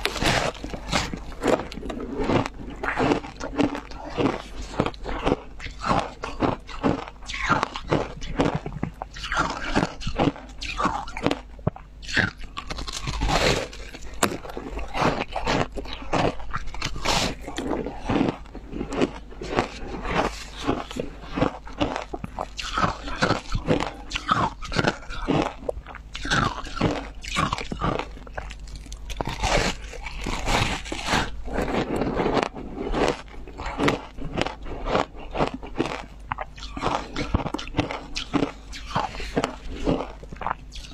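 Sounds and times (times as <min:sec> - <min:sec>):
crunching ice: 0:00.0 - 0:40.9.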